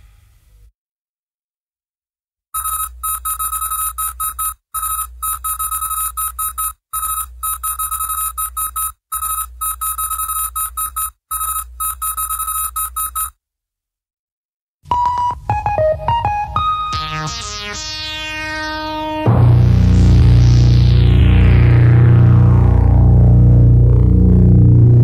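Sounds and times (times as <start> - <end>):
fast-pulsing electronic beep: 2.6 - 13.3
low hum: 19.3 - 25.0.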